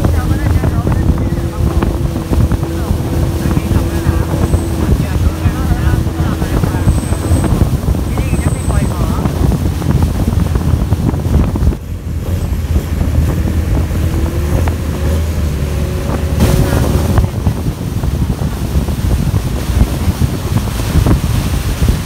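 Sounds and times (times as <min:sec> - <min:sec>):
motorboat engine running: 0:00.0 - 0:22.0
water rushing along hull: 0:00.0 - 0:22.0
wind buffeting microphone: 0:00.0 - 0:22.0.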